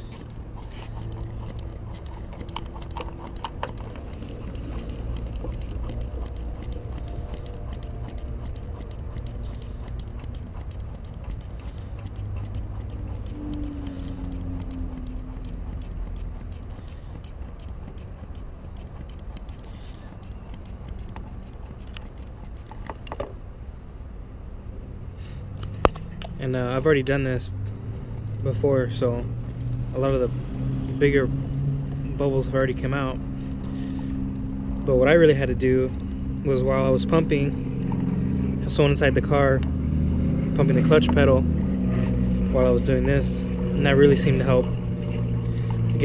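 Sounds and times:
hand vacuum pump clicking: 0:00.0 - 0:23.2
steady low rumble: 0:00.0 - 0:46.0.

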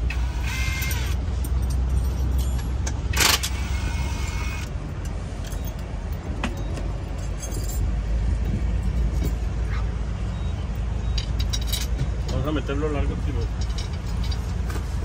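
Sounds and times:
steady low rumble: 0:00.0 - 0:15.0
metal hand tools clinking: 0:07.1 - 0:07.9.

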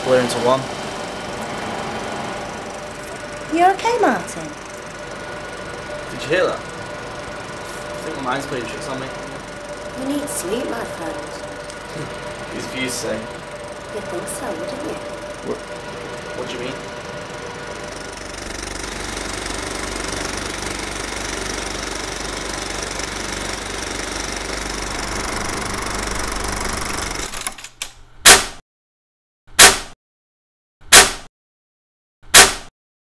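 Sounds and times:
film projector clattering: 0:02.6 - 0:27.9
loud short hits: 0:29.6 - 0:30.0, 0:30.9 - 0:31.3, 0:32.4 - 0:32.7.

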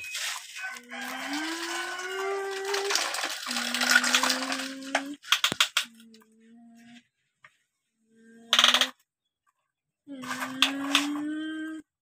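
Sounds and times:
toy motor and gears whirring: 0:00.9 - 0:05.8.

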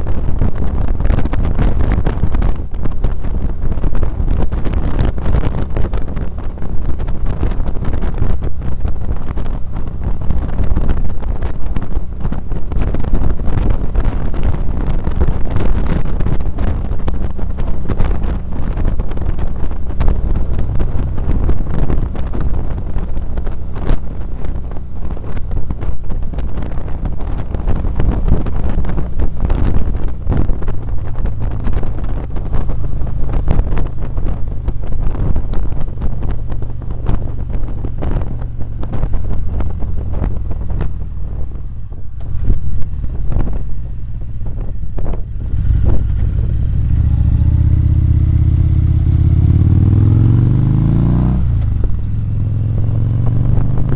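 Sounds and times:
motorcycle engine rumble: 0:00.0 - 0:53.9
wind buffeting microphone: 0:00.0 - 0:53.9.

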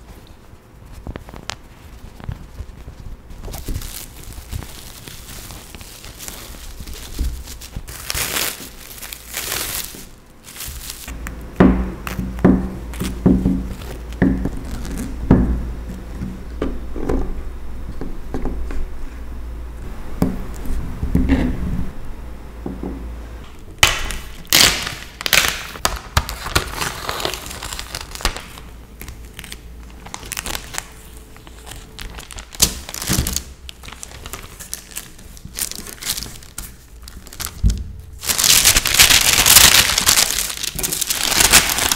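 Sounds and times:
baking paper crinkling: 0:00.0 - 0:11.2, 0:11.8 - 0:15.3, 0:23.8 - 0:41.9
cling film crinkling: 0:00.0 - 0:11.2, 0:12.0 - 0:15.2, 0:23.8 - 0:41.9.

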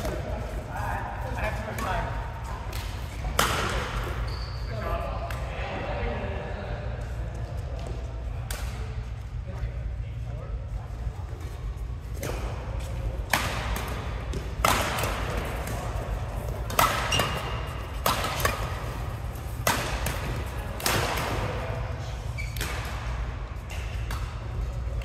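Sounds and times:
rackets hitting shuttlecock: 0:01.6 - 0:04.2, 0:12.2 - 0:25.0.

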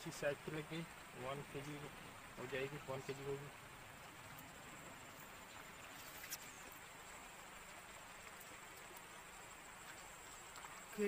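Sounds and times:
faint outdoor hiss: 0:00.0 - 0:11.0
high insect buzz: 0:02.5 - 0:11.0.

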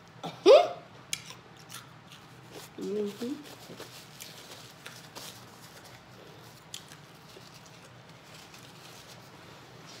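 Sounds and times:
paper napkin rustling: 0:02.5 - 0:10.0.

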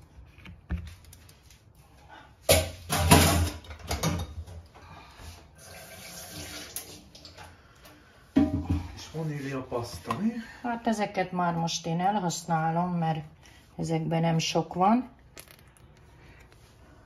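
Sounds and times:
tap water running into sink: 0:05.6 - 0:07.5.

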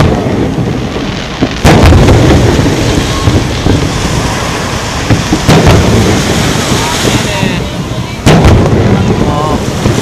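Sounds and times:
small firework pops: 0:00.0 - 0:06.9
firework boom: 0:00.0 - 0:10.0
rumbling tail: 0:00.0 - 0:10.0.

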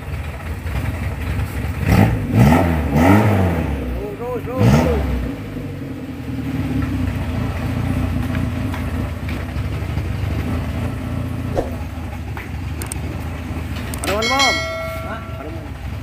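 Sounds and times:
engine idling: 0:00.0 - 0:16.0.

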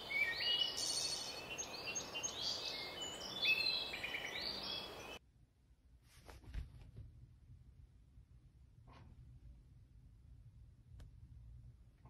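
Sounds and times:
birds chirping and calling: 0:00.0 - 0:05.2
steady background hiss: 0:00.0 - 0:05.2.

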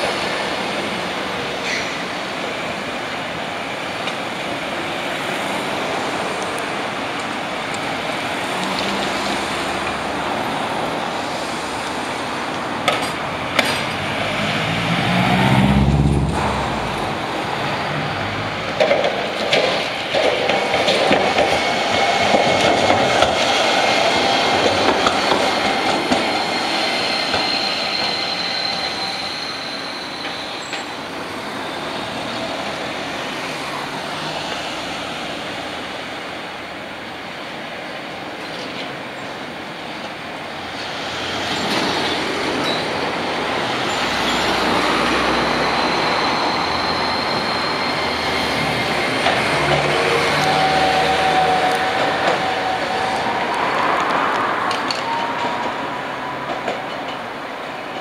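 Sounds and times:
road traffic: 0:00.0 - 0:58.0
trams running on rails: 0:00.0 - 0:58.0
high tram whine: 0:08.3 - 0:29.4, 0:40.9 - 0:56.8.

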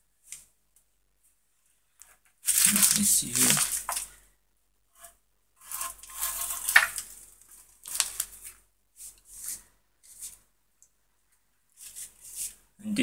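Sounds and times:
handling rustling and scraping: 0:01.2 - 0:04.2, 0:04.9 - 0:10.5, 0:11.7 - 0:12.7.

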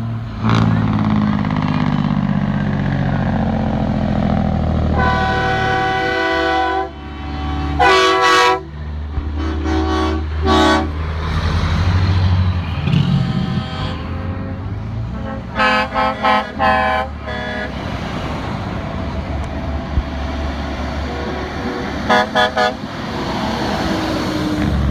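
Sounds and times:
diesel truck engines passing: 0:00.0 - 0:24.9
truck air horn blasts: 0:04.9 - 0:11.0, 0:12.7 - 0:17.8, 0:22.0 - 0:22.9.

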